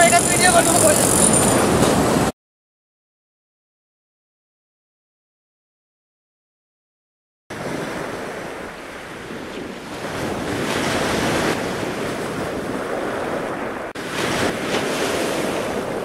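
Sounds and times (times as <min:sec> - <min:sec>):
sea surf: 0:00.0 - 0:02.3, 0:07.5 - 0:16.0
wind on microphone: 0:00.0 - 0:02.3, 0:07.5 - 0:16.0.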